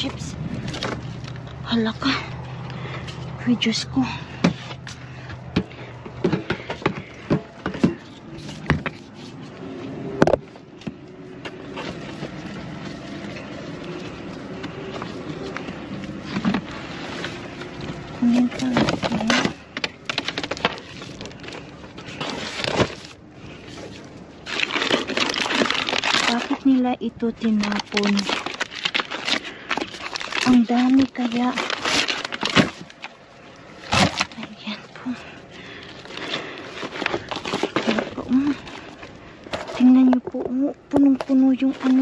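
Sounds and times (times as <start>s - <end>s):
trash bags rustling: 0.0s - 42.0s
knocks and clatters of boxes: 4.4s - 9.2s.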